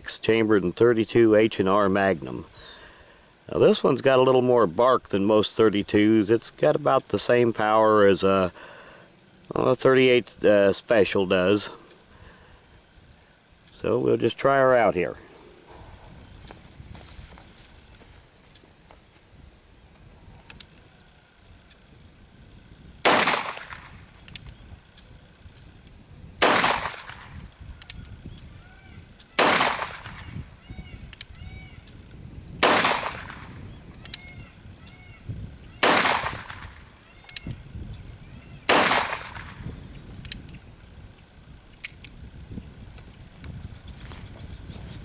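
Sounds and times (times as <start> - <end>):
small metallic clicks: 19.9 - 20.9, 23.6 - 25.1, 26.9 - 28.2, 31.0 - 32.0, 33.9 - 34.4, 37.2 - 37.6, 40.1 - 42.2.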